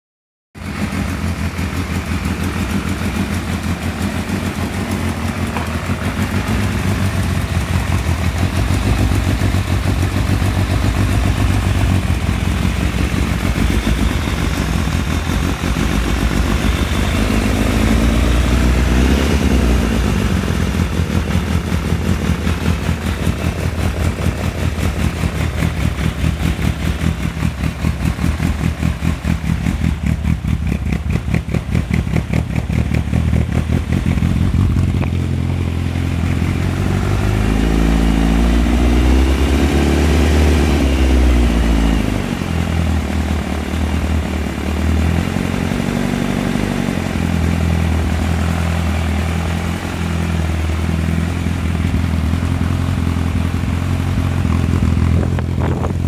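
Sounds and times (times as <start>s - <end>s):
motorcycle engine idling: 0.6s - 39.2s, 40.7s - 56.0s.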